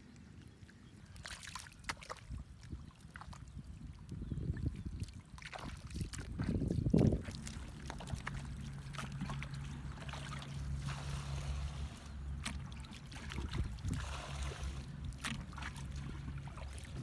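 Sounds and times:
muddy water splashing: 0.0 - 17.0
low drone: 7.3 - 17.0.

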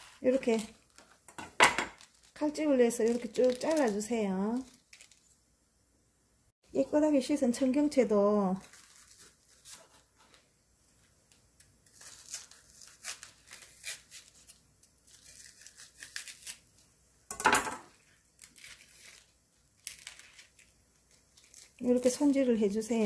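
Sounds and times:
stalks crackling and tearing: 2.0 - 5.2, 11.9 - 16.6, 18.4 - 22.2.

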